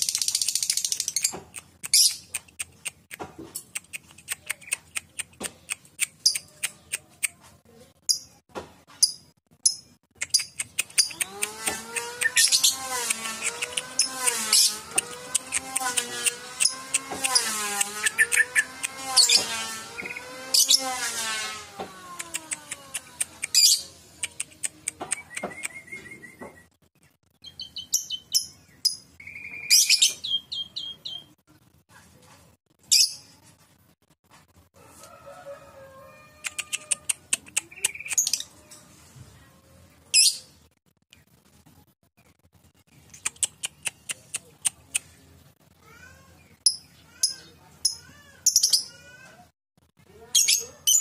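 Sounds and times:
birds chirping and calling: 0.0 - 31.4, 32.8 - 33.4, 36.4 - 40.6, 46.4 - 49.3, 50.1 - 51.0.

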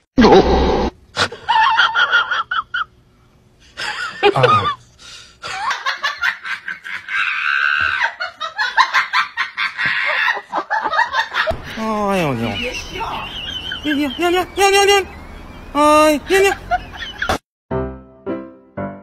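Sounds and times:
people laughing: 1.3 - 2.9, 3.8 - 4.8, 5.4 - 15.0, 16.2 - 17.4.

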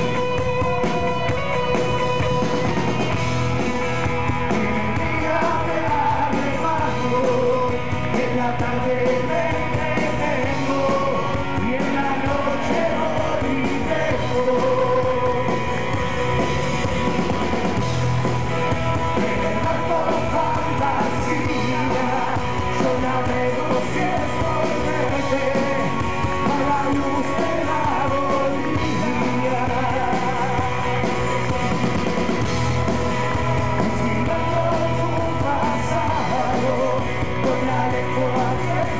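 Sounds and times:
drums: 0.0 - 38.9
electric guitars: 0.0 - 38.9
person singing into a microphone: 4.5 - 15.8, 19.2 - 31.1, 33.8 - 38.9.

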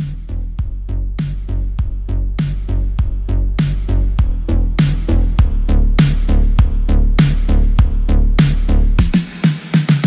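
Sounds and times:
electronic dance music: 8.4 - 10.0.

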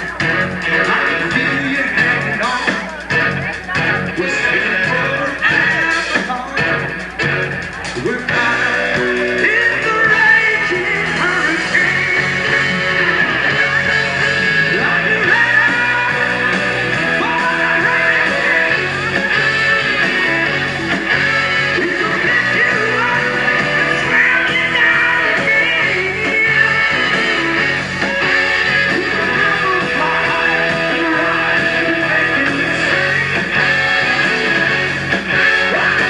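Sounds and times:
lead singer singing: 0.0 - 7.1, 7.7 - 36.0
electric guitar: 0.0 - 36.0
rock band playing live: 0.0 - 36.0.

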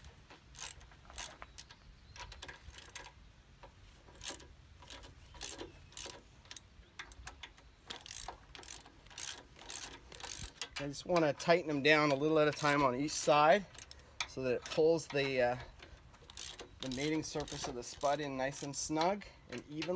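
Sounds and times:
ratchet wrench clicking: 0.5 - 1.4, 4.1 - 10.8, 12.1 - 19.9.

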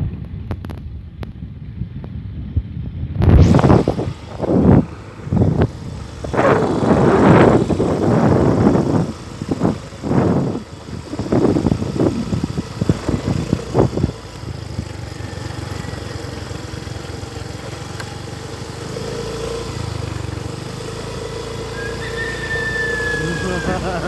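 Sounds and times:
wind gusts on microphone: 0.0 - 14.2
motorcycle engine running: 0.0 - 24.0.

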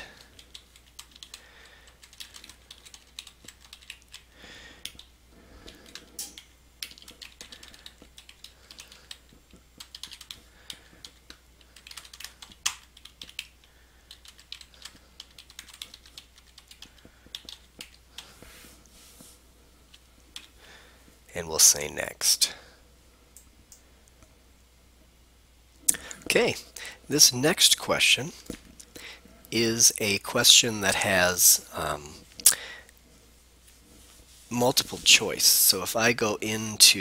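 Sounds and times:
faint low hum: 0.0 - 37.0
computer keyboard typing: 0.1 - 18.3, 19.9 - 20.6.

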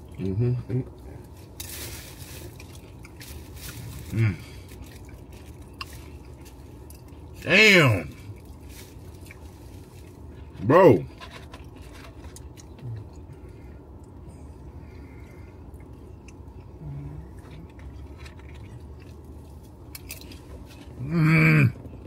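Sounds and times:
person chewing: 0.0 - 7.4, 8.1 - 21.1
low background hum: 0.0 - 22.0
person humming mmm: 16.7 - 17.6.

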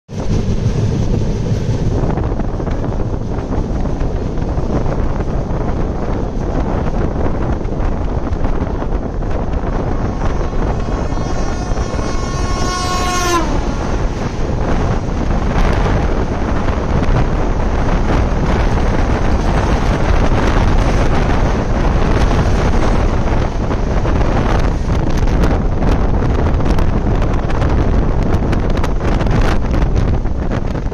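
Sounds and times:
train rushing past: 0.1 - 30.9
wind on microphone: 0.1 - 30.9
locomotive horn: 9.4 - 15.8.

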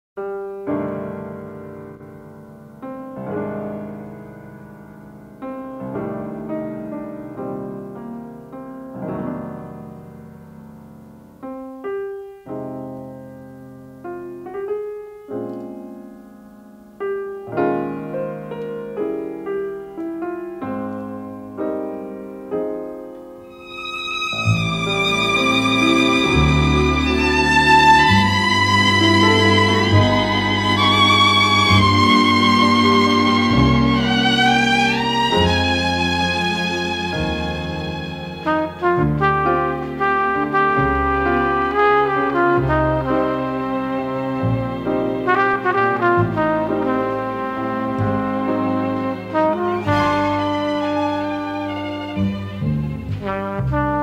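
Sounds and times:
piano playing slow chords: 0.2 - 54.0.

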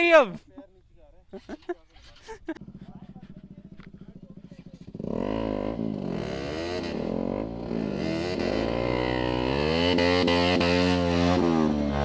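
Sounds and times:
motorcycle engines revving: 1.6 - 12.0
motorcycle engine idling: 2.4 - 9.4.

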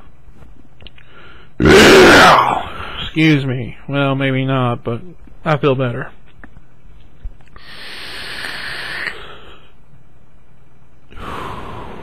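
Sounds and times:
hissing breath in: 7.6 - 9.7, 11.1 - 12.0.

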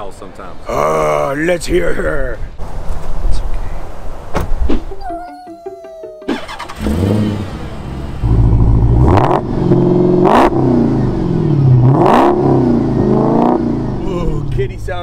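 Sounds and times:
car engine revving: 6.3 - 14.6.

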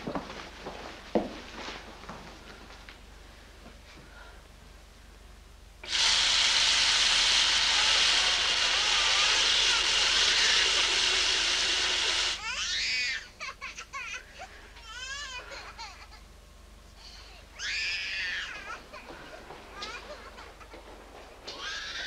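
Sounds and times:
loud rushing hiss: 5.8 - 12.4.

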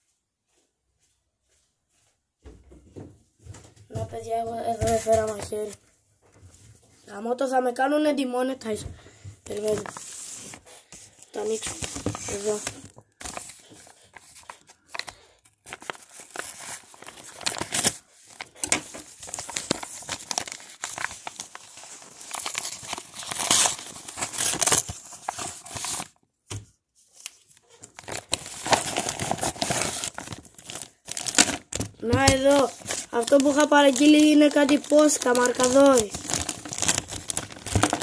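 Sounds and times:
paper envelope tearing: 11.4 - 13.6, 15.6 - 26.1, 27.2 - 38.0.

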